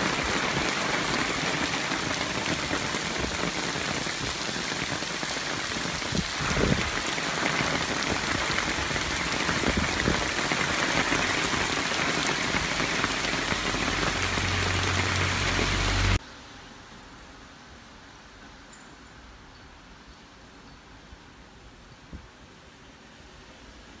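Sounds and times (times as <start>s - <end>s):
heavy rain on trees and leaves: 0.0s - 18.2s.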